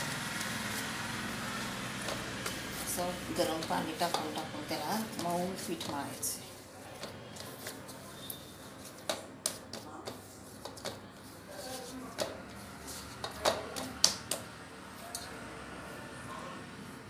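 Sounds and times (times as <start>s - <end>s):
dough slapping on metal plate: 2.0s - 6.0s, 8.8s - 14.5s.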